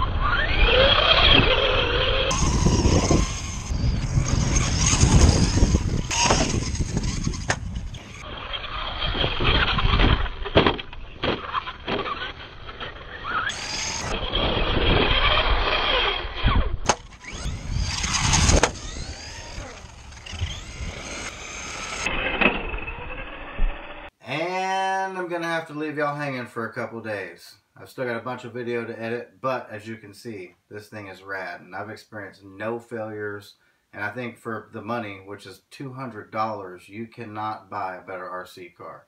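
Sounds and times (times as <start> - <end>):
tyre and wind noise: 0.0 - 23.9
electric motor whining: 0.0 - 24.1.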